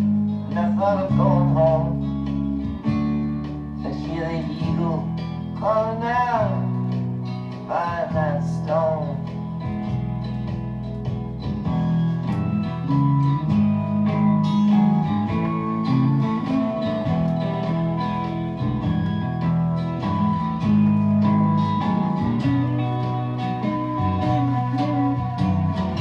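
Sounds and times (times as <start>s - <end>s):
guitar-led instrumental music: 0.0s - 26.0s.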